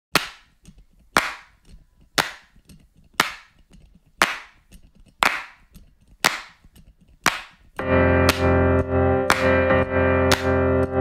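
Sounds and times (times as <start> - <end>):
clap-like percussion hits: 1.2 - 1.6, 2.2 - 2.5, 3.2 - 3.6, 4.2 - 4.6, 5.2 - 5.6, 6.2 - 6.6, 7.3 - 11.0.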